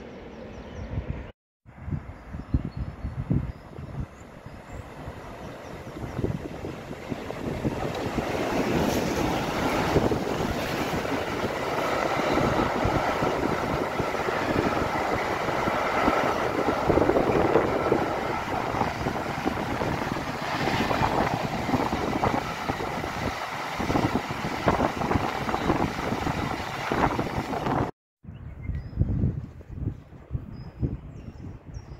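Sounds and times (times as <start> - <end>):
train wheels rumbling on rails: 5.0 - 27.9.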